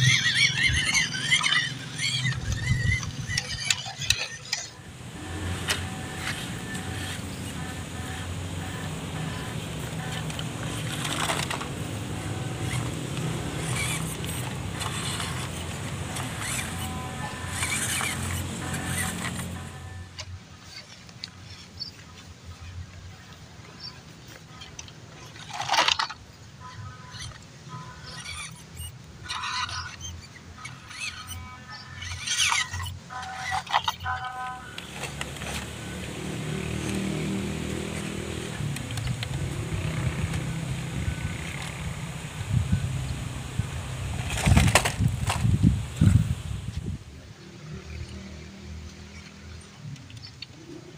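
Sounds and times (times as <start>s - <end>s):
small electric motor whirring: 0.0s - 21.6s, 26.8s - 43.6s.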